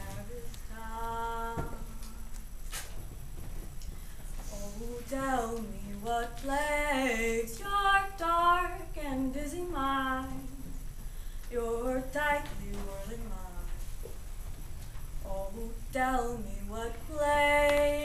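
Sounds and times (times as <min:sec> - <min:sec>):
woman singing unaccompanied: 0:00.0 - 0:02.4, 0:04.4 - 0:10.8, 0:11.5 - 0:13.9, 0:15.2 - 0:18.0.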